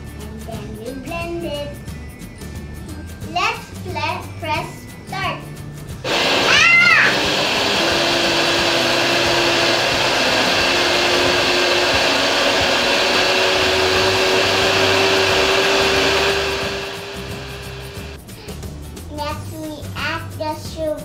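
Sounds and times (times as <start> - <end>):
blender whirring: 6.1 - 18.2.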